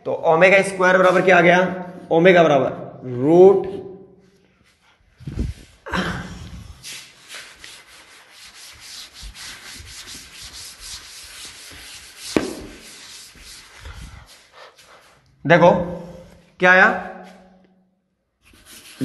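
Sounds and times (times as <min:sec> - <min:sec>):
duster scrubbing a chalkboard: 0:06.8 - 0:15.3, 0:18.4 - 0:19.0
bumps on chalkboard: 0:12.2 - 0:12.9.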